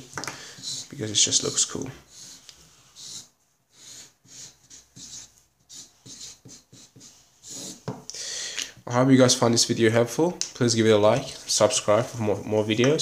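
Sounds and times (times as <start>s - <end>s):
marker scratching on paper: 0.5s - 8.0s.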